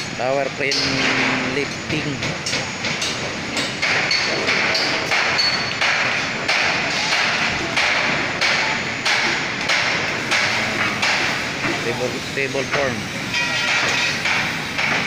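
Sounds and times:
hammer blows: 0:00.7 - 0:11.8.

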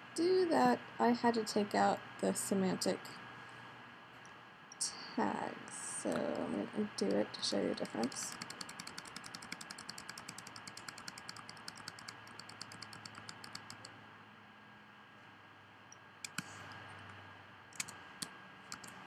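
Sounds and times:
keyboard key pressed rapidly: 0:07.8 - 0:13.9, 0:18.7 - 0:19.0.

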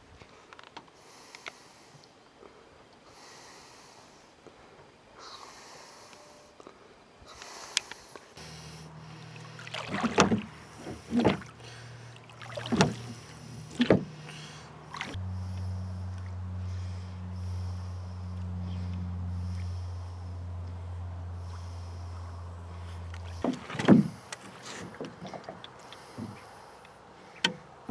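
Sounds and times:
steady low hum: 0:01.0 - 0:27.9
water rushing from oar strokes: 0:08.4 - 0:15.2, 0:23.2 - 0:26.6
loud knocks: 0:23.4 - 0:24.2.

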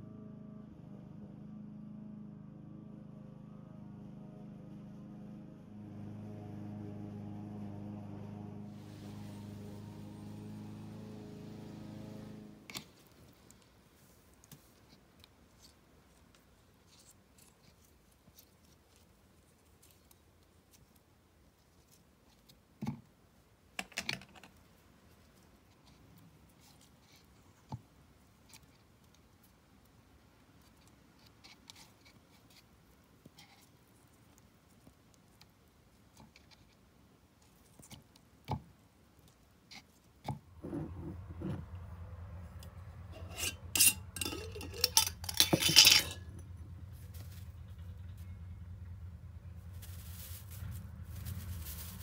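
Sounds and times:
plastic bag and tub handling: 0:49.6 - 0:52.0.

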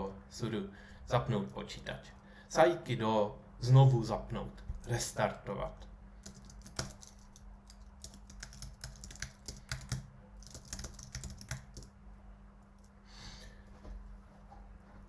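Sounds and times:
faint low hum: 0:00.0 - 0:15.0
keyboard typing: 0:06.2 - 0:11.9.

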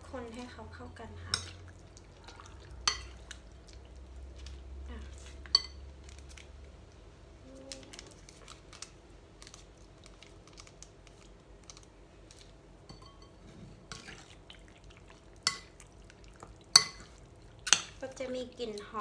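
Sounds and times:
plastic sachets crinkling: 0:07.4 - 0:12.6.

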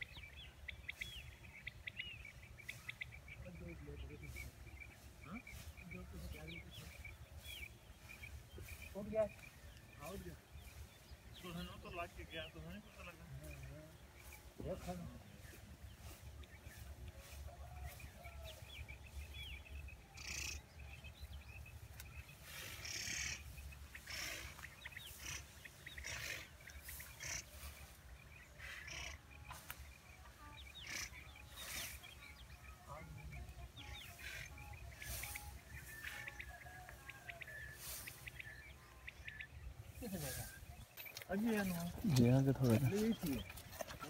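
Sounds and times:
bird chirps: 0:00.0 - 0:44.0
net rustling through wheat: 0:34.1 - 0:36.6, 0:37.4 - 0:38.6.

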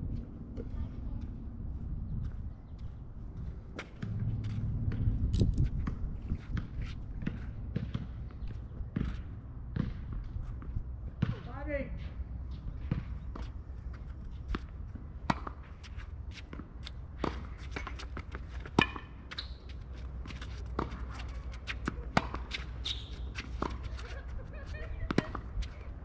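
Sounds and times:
steady low rumble: 0:00.0 - 0:11.3
tennis ball bouncing: 0:05.8 - 0:10.2, 0:14.5 - 0:26.0
racket striking tennis ball: 0:16.5 - 0:24.2.

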